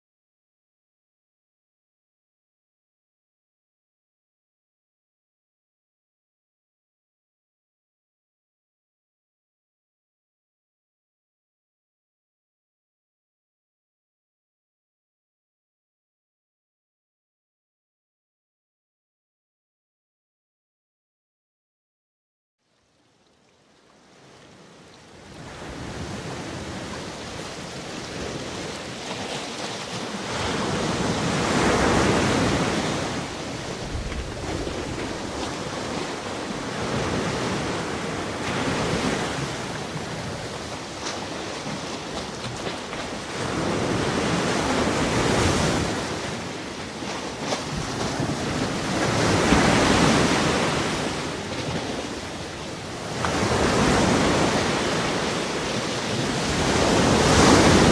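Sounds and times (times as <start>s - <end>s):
waves breaking ashore: 23.9s - 57.9s.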